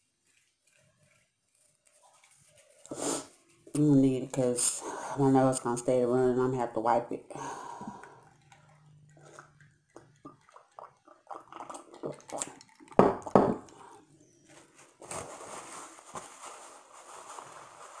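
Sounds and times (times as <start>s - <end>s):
paper tissue rustling: 0.0s - 4.5s, 14.3s - 18.0s
gulps while drinking: 9.2s - 12.9s.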